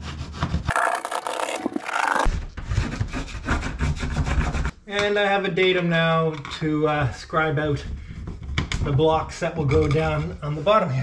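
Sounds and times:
pencil scratching on wood: 0.1s - 4.7s.

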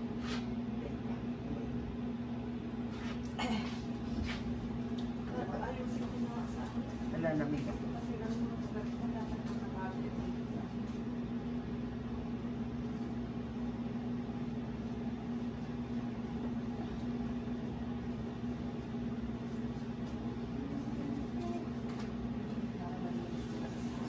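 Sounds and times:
appliance fan motor humming: 0.0s - 24.0s.

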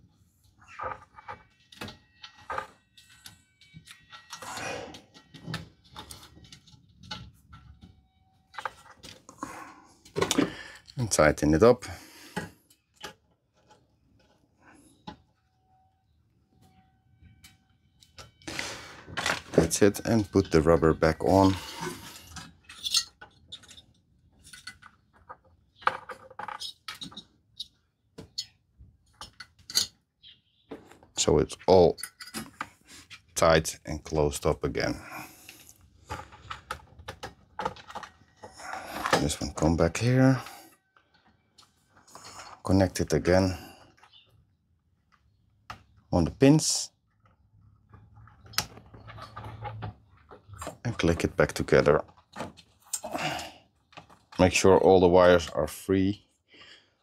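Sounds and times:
hands clicking and tapping parts: 19.2s - 30.0s.

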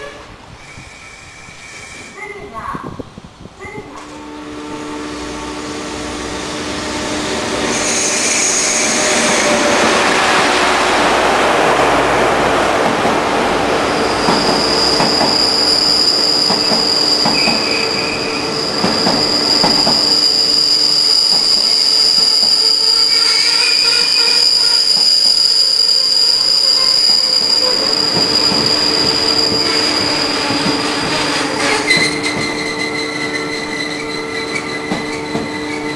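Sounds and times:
high brake squeal: 0.6s - 2.4s, 7.6s - 10.1s, 14.0s - 35.9s
train wheels clicking over rail joints: 14.2s - 18.1s, 18.7s - 20.4s, 27.0s - 35.9s.

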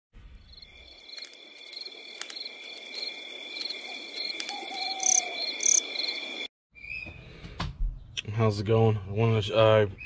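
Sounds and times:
crickets chirping: 0.4s - 6.5s
high insect trill: 0.4s - 6.5s.

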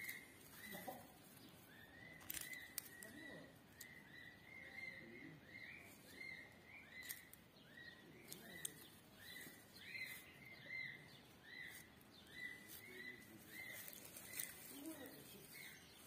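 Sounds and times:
chicks peeping: 0.0s - 16.0s
light clicks from egg and nest: 8.3s - 9.6s.

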